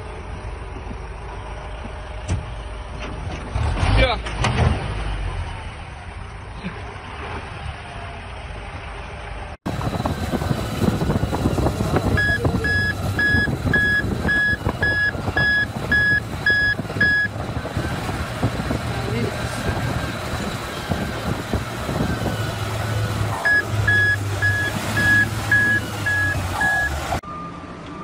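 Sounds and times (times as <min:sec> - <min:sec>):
truck engine running: 0:00.0 - 0:03.8, 0:05.5 - 0:28.0
bulldozer engine and tracks: 0:00.0 - 0:28.0
reversing alarm beeps: 0:12.1 - 0:17.4, 0:23.4 - 0:28.0.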